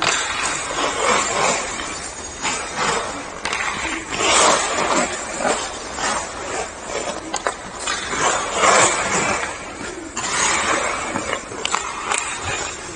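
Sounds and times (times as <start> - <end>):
skate blades scraping ice: 0.0 - 12.9
stick clicking on puck: 2.8 - 9.5, 10.2 - 12.8.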